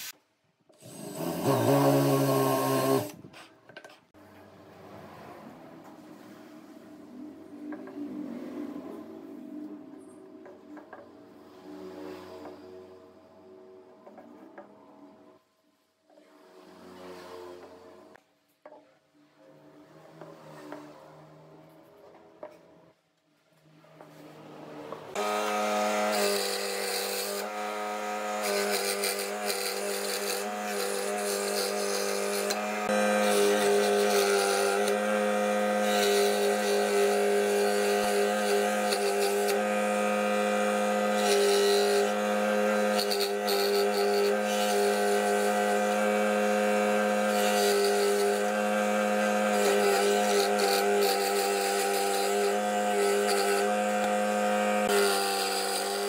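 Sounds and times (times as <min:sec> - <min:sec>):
scroll saw cutting wood: 0:00.0 - 0:03.5, 0:25.1 - 0:56.0.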